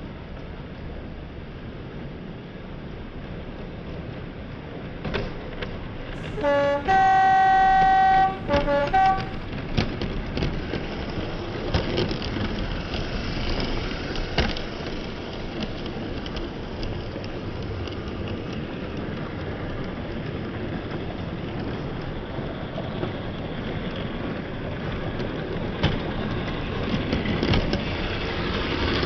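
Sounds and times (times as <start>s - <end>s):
model train rumbling on track: 0.1s - 29.0s
wheels clicking over rail joints: 2.9s - 29.0s
model train horn toots: 6.2s - 9.6s.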